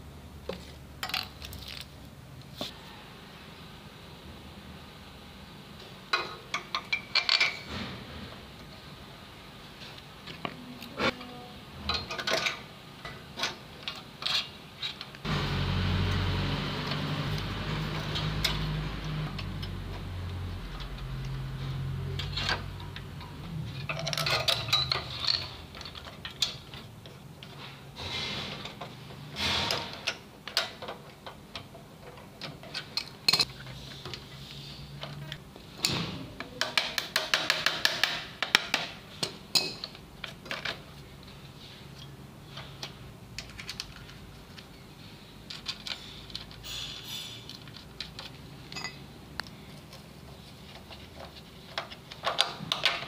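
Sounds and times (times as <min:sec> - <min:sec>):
metal and plastic parts clinking: 0:22.1 - 0:27.6, 0:42.0 - 0:44.8, 0:45.4 - 0:50.1, 0:50.7 - 0:53.0.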